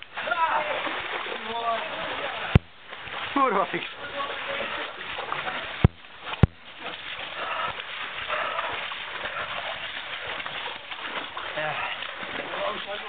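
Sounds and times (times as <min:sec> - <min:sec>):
footsteps through wet snow: 0:00.0 - 0:13.0
sharp knocks: 0:02.6 - 0:02.8, 0:05.8 - 0:06.7.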